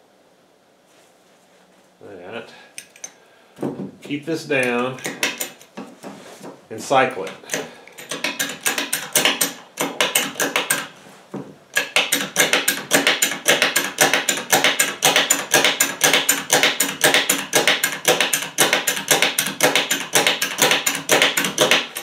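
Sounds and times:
bottle jack pumping clicks: 4.6s - 5.7s, 7.2s - 10.9s, 11.7s - 22.0s.

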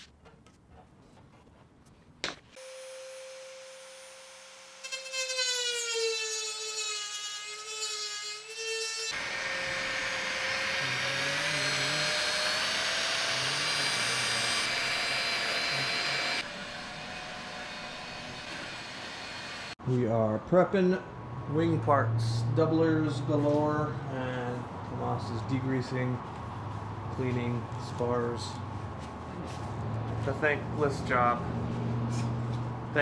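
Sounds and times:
cordless drill drilling metal: 2.6s - 6.3s, 9.1s - 19.8s
rotary tool cutting metal: 2.6s - 19.8s.

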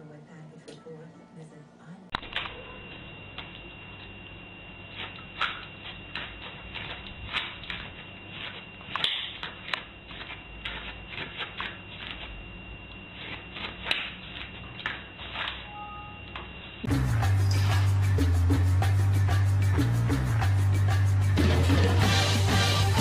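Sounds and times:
faint high whine: 0.6s - 17.9s.

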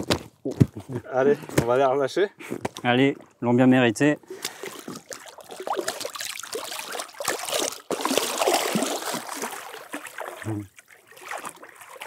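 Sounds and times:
shallow water splashing and sloshing: 2.7s - 12.0s.

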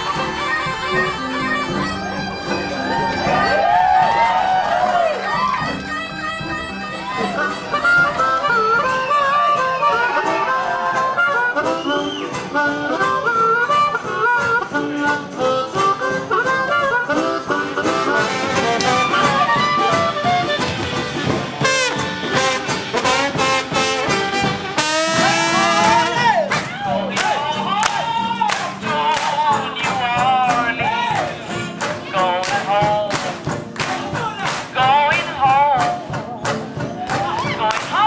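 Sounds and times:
reedy wind instrument melody: 0.0s - 26.5s
live jazz band music: 0.0s - 38.0s.

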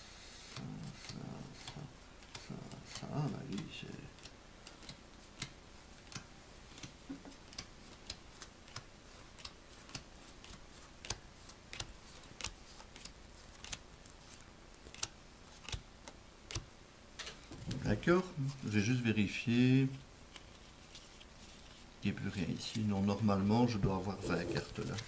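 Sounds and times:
playing cards being dealt: 23.7s - 25.0s.

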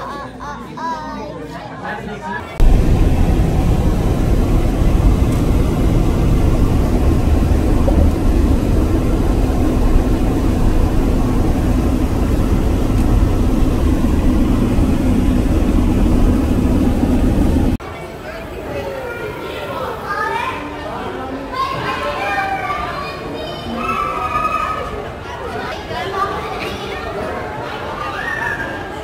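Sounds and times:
car road and wind noise: 2.6s - 17.8s
low hum: 2.6s - 17.8s.

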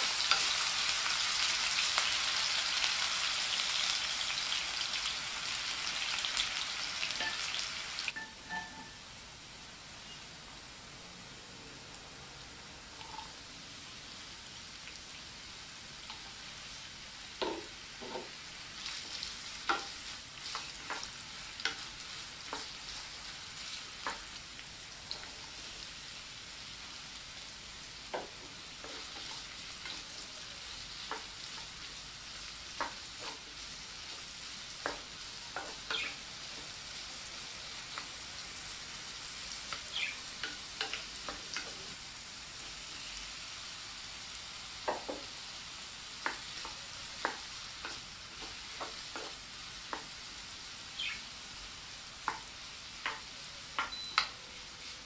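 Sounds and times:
vegetables sizzling in a pan: 0.0s - 55.0s
wooden spoon scraping a pan: 18.0s - 24.2s, 32.8s - 35.0s.

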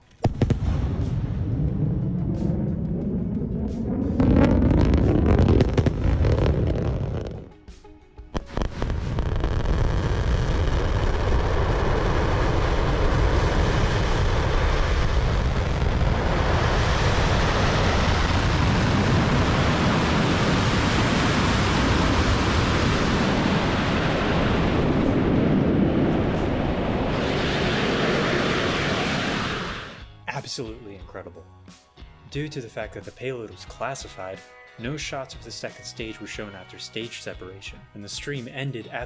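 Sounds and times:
rocket engine rumble: 0.0s - 7.7s, 8.4s - 30.1s
wind on microphone: 0.9s - 7.4s, 11.4s - 30.0s.

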